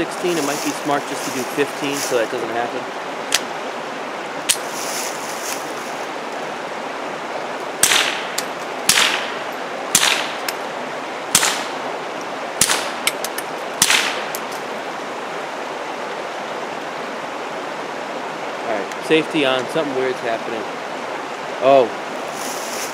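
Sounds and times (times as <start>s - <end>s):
suppressed pistol shots: 7.8s - 10.4s, 11.3s - 11.7s, 12.6s - 13.2s, 13.8s - 14.3s.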